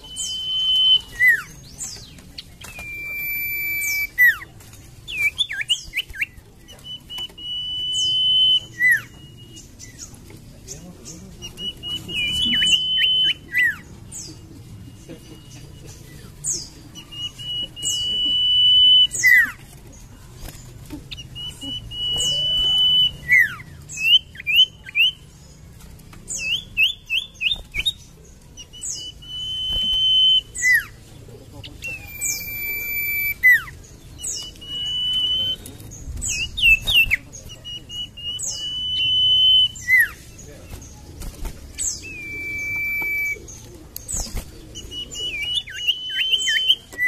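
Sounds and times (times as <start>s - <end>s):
bird singing high whistles: 0.0s - 1.5s, 2.6s - 4.4s, 5.1s - 9.7s, 11.5s - 13.8s, 17.0s - 19.6s, 21.4s - 25.2s, 28.7s - 30.9s, 31.9s - 40.2s, 41.8s - 43.5s, 44.8s - 47.0s.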